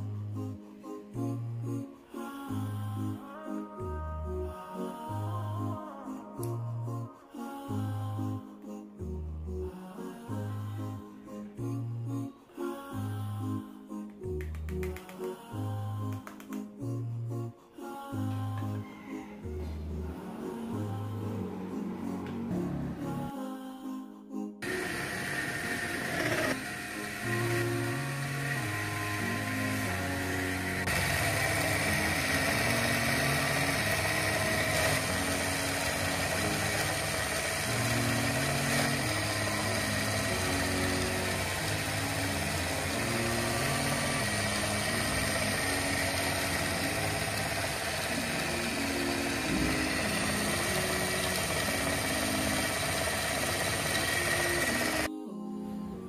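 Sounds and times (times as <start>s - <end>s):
background music: 0.0s - 56.0s
small toy mixer motor running: 24.6s - 55.1s.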